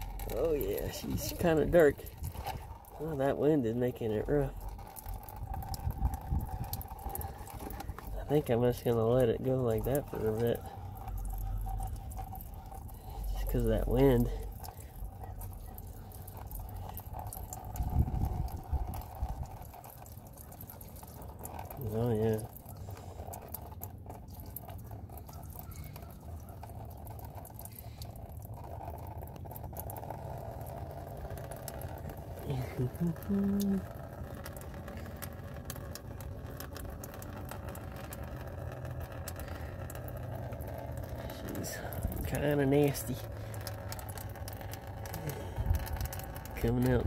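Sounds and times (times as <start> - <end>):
oil trickling into drain pan: 0.0 - 47.0
wind buffeting microphone: 5.2 - 8.2, 17.6 - 19.7
small ticks: 22.3 - 32.1.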